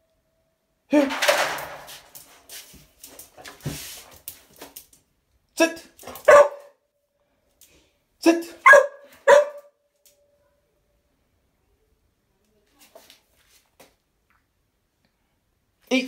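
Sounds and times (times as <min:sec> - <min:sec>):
puppy barking: 0:06.1 - 0:06.8, 0:08.6 - 0:09.8.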